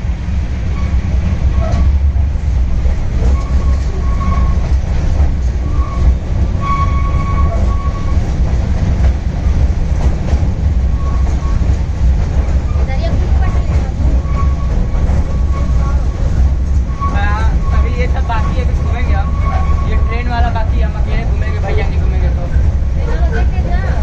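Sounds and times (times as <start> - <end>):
ride train rumble and rattle: 0.0 - 24.0
high squeals: 5.6 - 8.3, 14.0 - 20.3.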